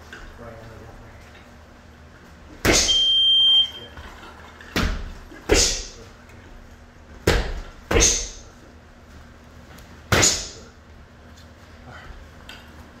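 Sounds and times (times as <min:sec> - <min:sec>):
punches smacking leather mitts: 0:07.2 - 0:08.4.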